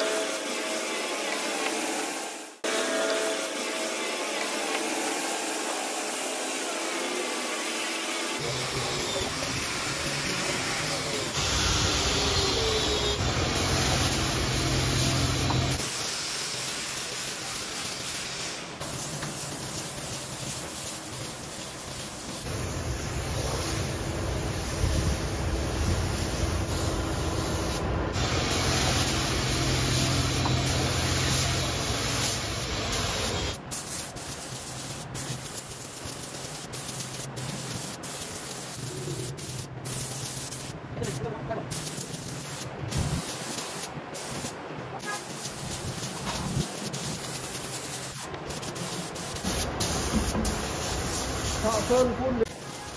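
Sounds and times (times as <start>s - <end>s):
spray gun hissing: 0.0s - 52.9s
louder noise with low hum: 8.4s - 16.1s, 22.5s - 33.6s.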